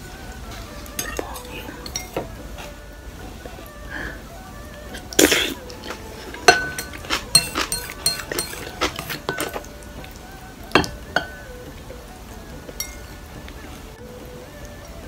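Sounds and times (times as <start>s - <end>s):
soft background music: 0.0s - 15.0s
chopsticks clinking on ceramic bowl: 1.0s - 2.3s, 5.8s - 11.4s, 12.8s - 13.1s.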